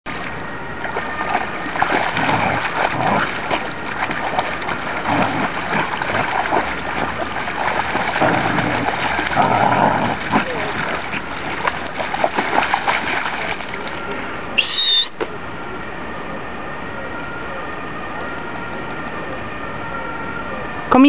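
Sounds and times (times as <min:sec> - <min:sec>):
dogs splashing in water: 0:00.1 - 0:14.2.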